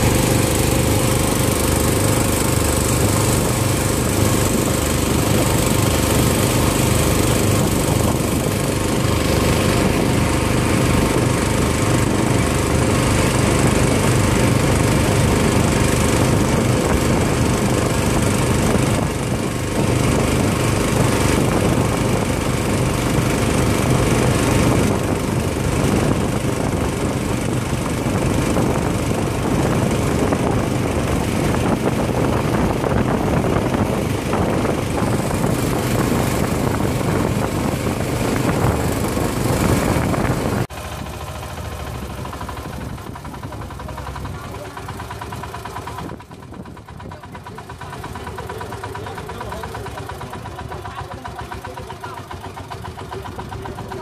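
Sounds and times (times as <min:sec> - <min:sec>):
motorboat engine running: 0:00.0 - 0:54.0
wake rushing along hull: 0:00.0 - 0:54.0.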